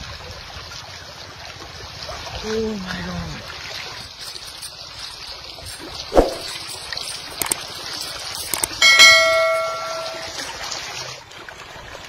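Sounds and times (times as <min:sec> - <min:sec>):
water hissing: 0:04.0 - 0:08.7
bright bell ding: 0:08.6 - 0:10.6.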